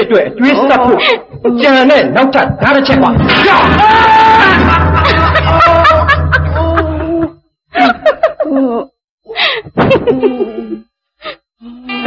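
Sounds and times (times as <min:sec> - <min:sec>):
music: 0:03.2 - 0:07.3.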